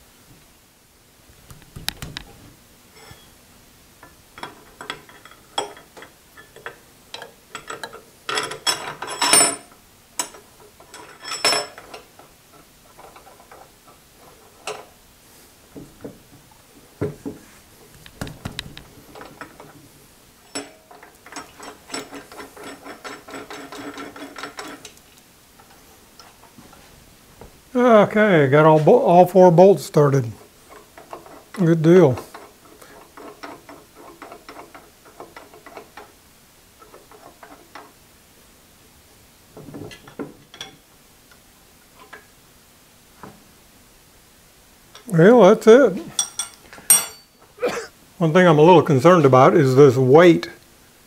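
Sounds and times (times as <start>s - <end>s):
metal tools clinking: 2.9s - 3.4s, 4.4s - 12.0s, 20.4s - 24.8s, 46.1s - 47.5s.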